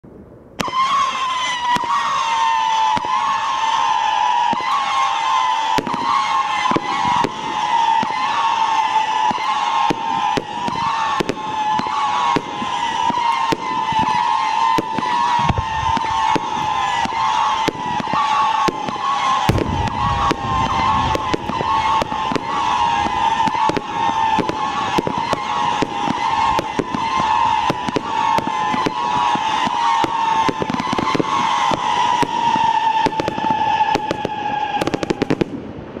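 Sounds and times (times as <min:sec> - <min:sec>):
crackling bursts: 0:00.2 - 0:36.0
fireworks screeching whistles: 0:00.6 - 0:35.6
firework launch shots: 0:00.6 - 0:36.0.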